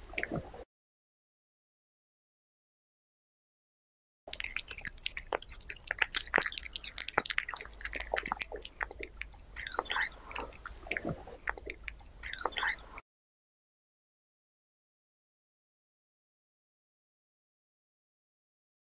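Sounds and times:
cat chewing meat: 4.3 - 13.0.

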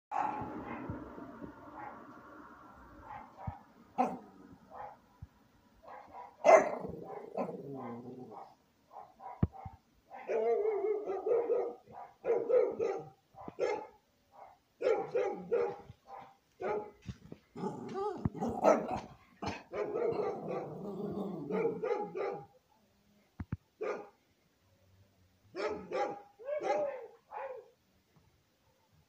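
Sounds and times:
small dog barking: 0.1 - 1.0, 3.0 - 5.0, 5.8 - 17.0, 17.6 - 22.5, 23.8 - 24.2, 25.5 - 27.8.

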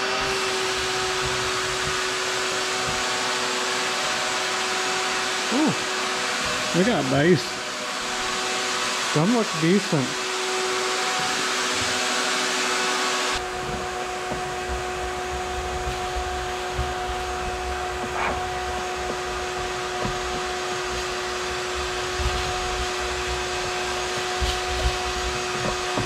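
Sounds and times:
shop vacuum running: 0.0 - 26.0
debris rattling up hose: 13.4 - 26.0.

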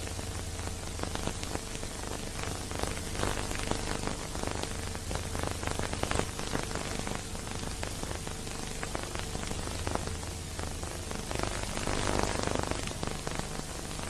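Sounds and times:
film soundtrack crackling and hiss: 0.0 - 14.0
steady low hum: 0.0 - 14.0.

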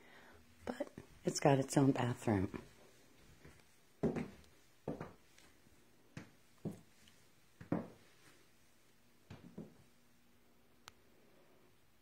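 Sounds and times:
footsteps on hard floor: 2.5 - 8.4, 9.3 - 9.9.

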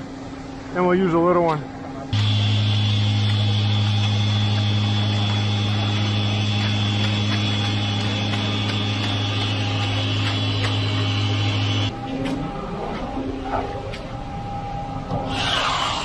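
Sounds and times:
vibrating concrete screed running: 2.2 - 11.9.

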